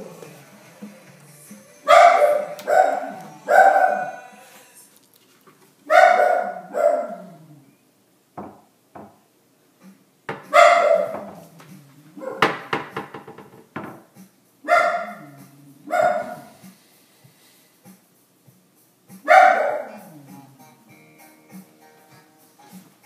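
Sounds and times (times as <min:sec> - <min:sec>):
dog barking: 0:01.9 - 0:04.2, 0:05.9 - 0:07.4, 0:10.5 - 0:11.5, 0:12.2 - 0:12.6, 0:14.7 - 0:16.6, 0:19.2 - 0:20.1.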